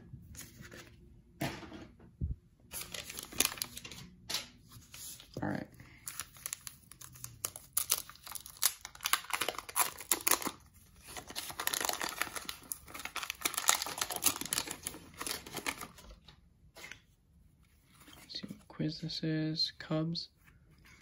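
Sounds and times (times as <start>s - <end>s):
paper wrapper crinkling and tearing: 2.7s - 4.0s, 4.8s - 16.3s.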